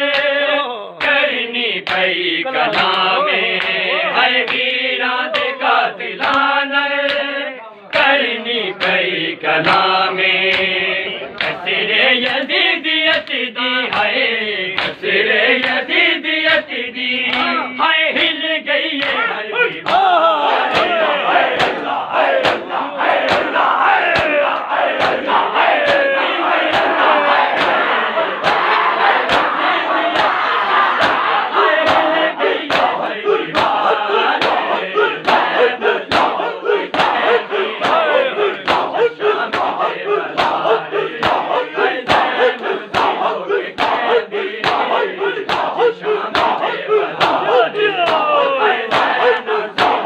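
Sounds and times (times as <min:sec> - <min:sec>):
men chanting in unison: 0:00.0 - 0:50.0
crowd shouting: 0:02.2 - 0:06.8, 0:16.1 - 0:50.0
palms slapping chests: 0:18.9 - 0:50.0
sharp chest slaps: 0:21.6 - 0:21.8, 0:23.2 - 0:23.5, 0:36.1 - 0:37.2, 0:37.8 - 0:38.9, 0:45.5 - 0:45.7, 0:47.2 - 0:47.5, 0:49.8 - 0:50.0.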